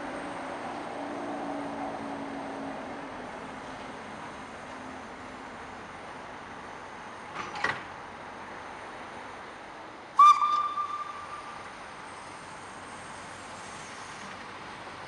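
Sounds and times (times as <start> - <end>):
steam whistle blast: 10.2 - 11.6.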